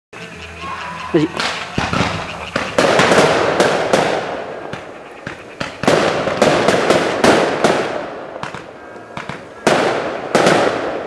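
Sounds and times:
fireworks crackling: 0.2 - 11.0
fireworks bangs: 1.4 - 11.0.

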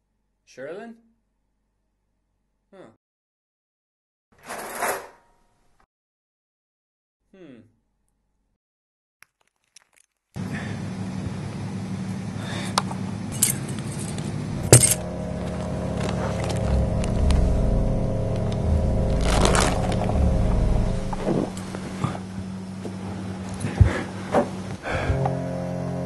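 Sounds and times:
steady low drone: 13.2 - 23.7.

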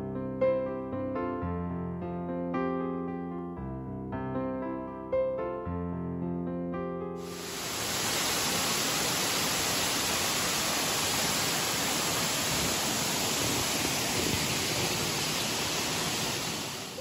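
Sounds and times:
waterfall rushing: 7.2 - 17.0.

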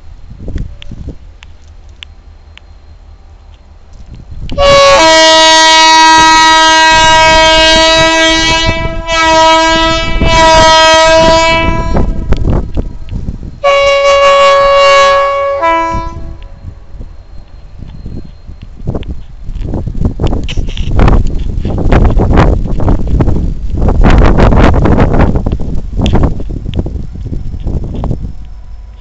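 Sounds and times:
locomotive air horn blasts: 4.5 - 12.5, 13.6 - 16.7.

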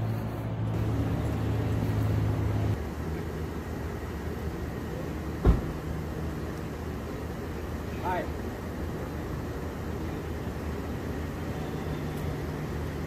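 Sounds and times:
dull steady rumble: 0.0 - 13.0
low engine hum: 0.0 - 13.0
sharp thump: 5.4 - 5.8.

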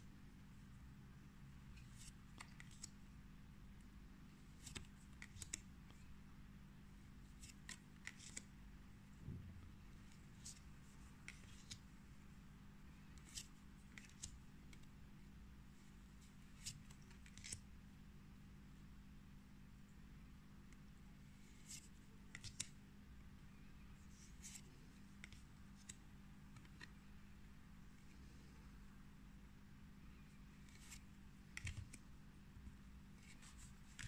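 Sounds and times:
faint steady hum: 0.0 - 34.0
trading cards clicking and sliding: 1.8 - 3.0, 4.4 - 6.1, 7.2 - 8.5, 10.0 - 11.8, 13.0 - 14.9, 16.3 - 17.6, 21.4 - 22.8, 30.5 - 32.1, 33.2 - 34.0.

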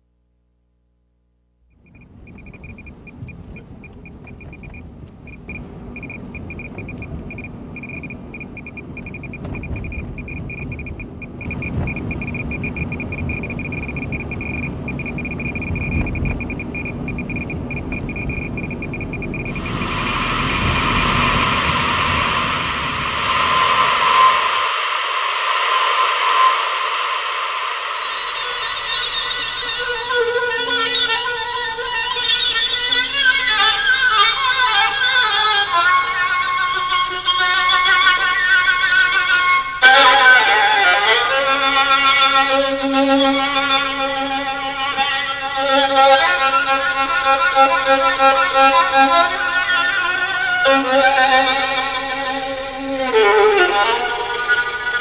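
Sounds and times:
car driving rumble: 1.8 - 26.2
radiation meter beeping: 1.8 - 33.0.

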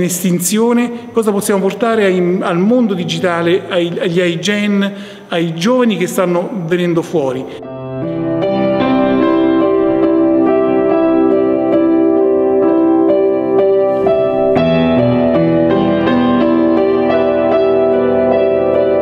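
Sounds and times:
solo piano chords: 0.0 - 19.0.

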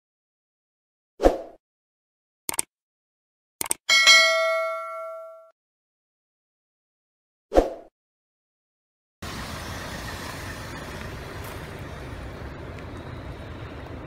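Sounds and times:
short chime: 3.9 - 5.5
outdoor rumble with hiss: 9.2 - 14.0.

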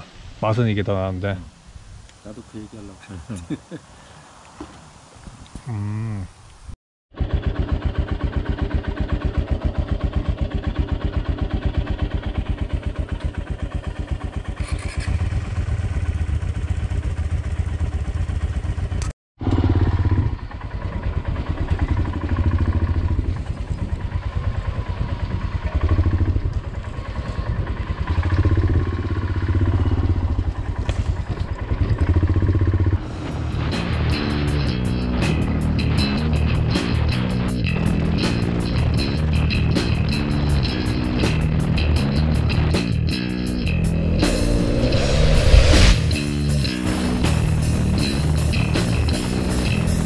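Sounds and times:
motorcycle engine at low revs: 7.1 - 34.2.

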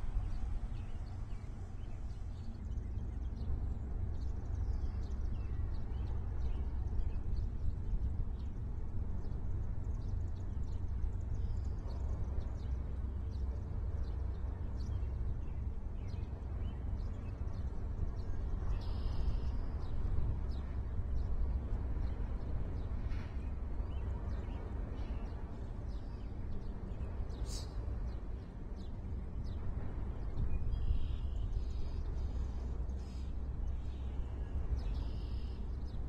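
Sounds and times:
steady low rumble: 0.0 - 36.0
small birds chirping: 23.9 - 29.6.

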